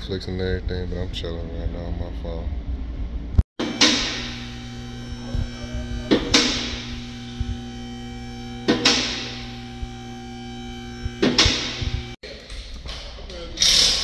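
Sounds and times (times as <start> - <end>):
hydraulic pump motor humming: 3.6 - 12.2.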